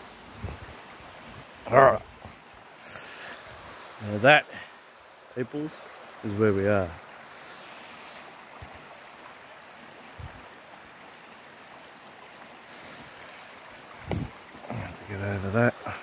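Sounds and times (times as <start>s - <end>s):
water running over rocks: 0.0s - 16.0s
low knocks: 14.0s - 14.3s.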